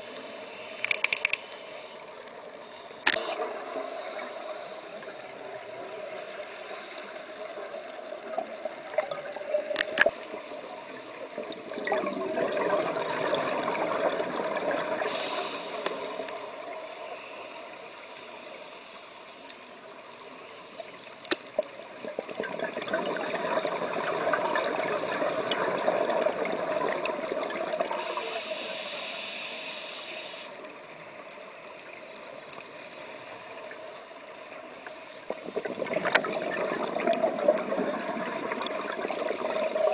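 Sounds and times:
scuba regulator breathing: 0:00.0 - 0:02.1, 0:03.2 - 0:10.9, 0:15.0 - 0:19.9, 0:27.9 - 0:30.6, 0:32.8 - 0:35.8
high hiss: 0:00.0 - 0:11.0, 0:15.0 - 0:20.0, 0:27.9 - 0:30.7, 0:32.8 - 0:35.6
sharp clicks: 0:00.8 - 0:01.6
exhaled bubbles: 0:11.1 - 0:15.4, 0:22.0 - 0:28.2, 0:35.3 - 0:39.9.

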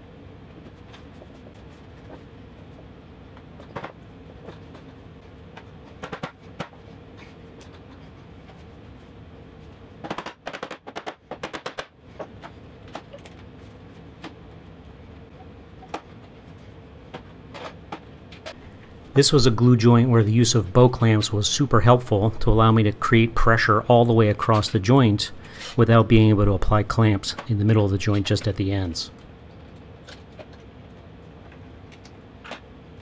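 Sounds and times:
steady shop hum: 0:00.0 - 0:33.0.

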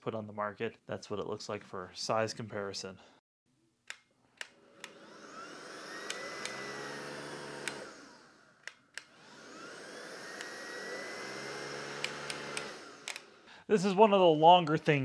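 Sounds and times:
vacuum motor whining: 0:04.5 - 0:13.5
slide switch clicks: 0:06.0 - 0:06.6, 0:12.0 - 0:13.3.

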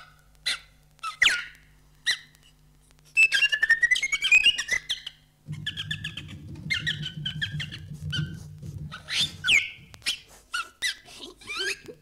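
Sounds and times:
cartoon mouse squeaks: 0:00.0 - 0:02.4, 0:03.1 - 0:12.0
low hum: 0:05.4 - 0:10.1.

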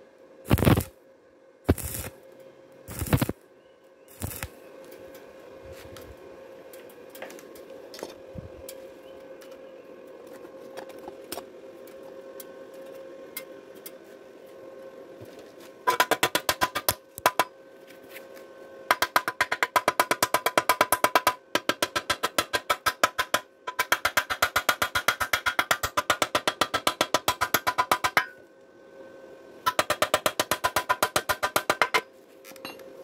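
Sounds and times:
faint steady hum: 0:00.0 - 0:33.0
welding arc crackle: 0:00.5 - 0:01.0, 0:01.7 - 0:02.2, 0:02.9 - 0:03.4, 0:04.1 - 0:04.6.

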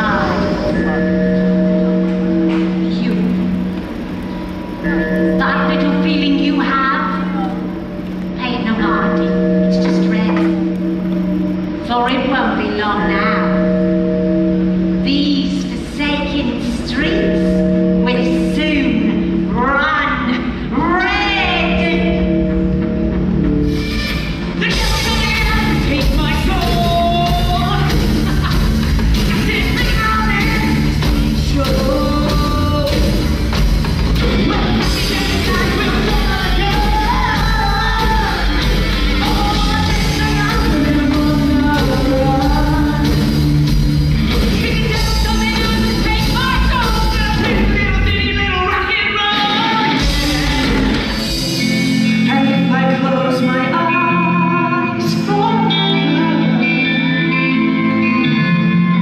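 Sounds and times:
bass: 0:00.0 - 0:59.0
guitar: 0:00.0 - 0:59.0
drums: 0:20.6 - 0:54.0
person singing: 0:24.6 - 0:33.6, 0:34.3 - 0:43.4, 0:52.1 - 0:59.0.

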